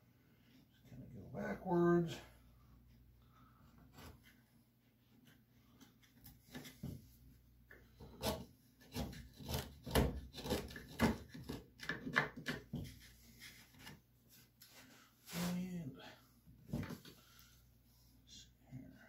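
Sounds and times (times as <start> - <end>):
carving tool scraping wood: 8.0 - 12.1.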